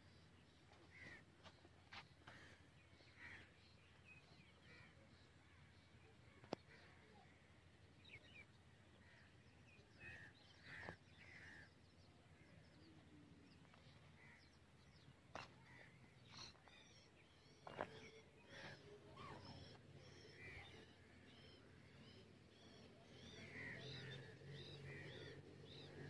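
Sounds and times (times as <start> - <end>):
faint bird calls: 13.7 - 26.0.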